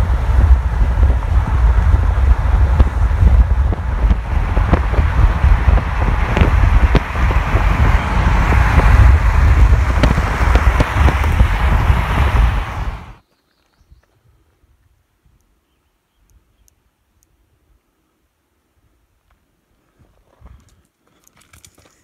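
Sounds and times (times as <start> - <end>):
car road noise rumble: 0.0 - 13.2
wind buffeting microphone: 0.0 - 13.2.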